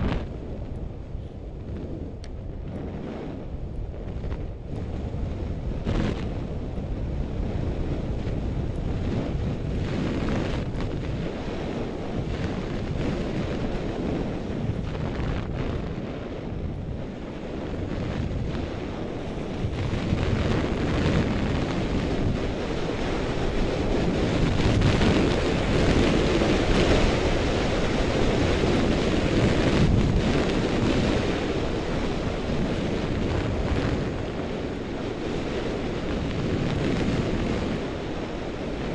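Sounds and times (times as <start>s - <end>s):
wind rushing over microphone: 0.0s - 38.9s
skis sliding on snow: 9.0s - 15.8s, 17.5s - 38.9s.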